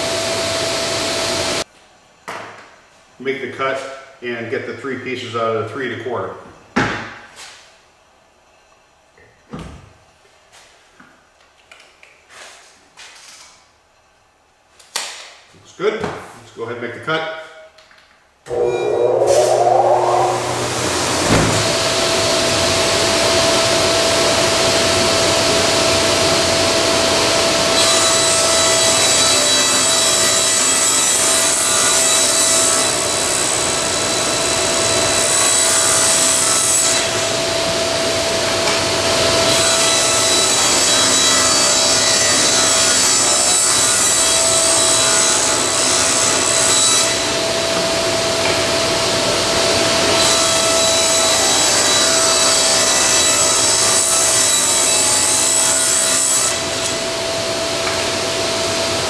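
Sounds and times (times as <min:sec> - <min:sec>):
steady whine: 0:18.5 - 0:22.6
table saw cutting plywood: 0:18.5 - 0:59.0.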